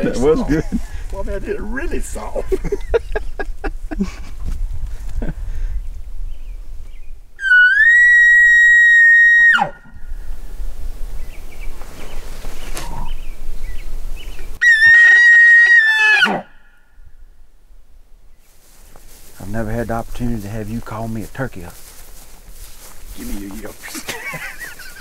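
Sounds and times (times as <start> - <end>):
elk bugle call whistle: 7.4 - 10.0, 14.6 - 16.9.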